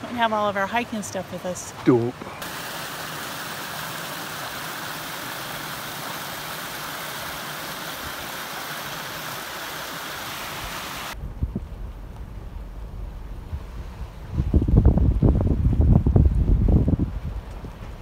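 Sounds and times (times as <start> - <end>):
creek water rushing over stones: 0.7 - 11.2.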